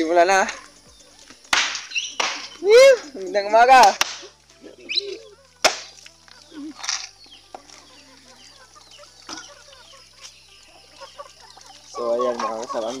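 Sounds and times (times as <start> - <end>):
chickens clucking: 0.0 - 13.0
machete chopping coconut: 1.5 - 2.6, 3.8 - 4.3, 5.6 - 6.0.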